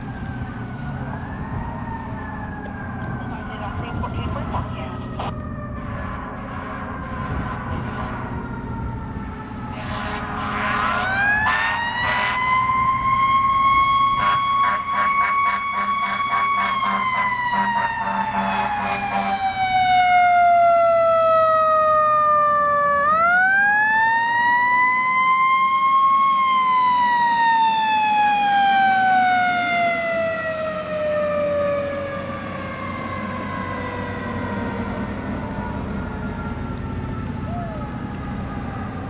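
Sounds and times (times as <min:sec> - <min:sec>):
truck engine running low: 0:25.6 - 0:39.0.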